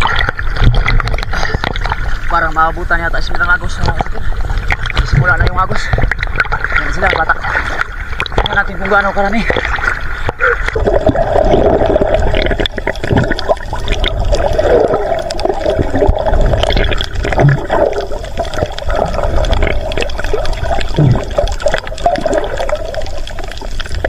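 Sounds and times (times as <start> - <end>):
small underwater clicks: 0.0 - 2.2, 3.2 - 10.8, 11.6 - 24.0
underwater rushing and gurgling: 0.0 - 24.0.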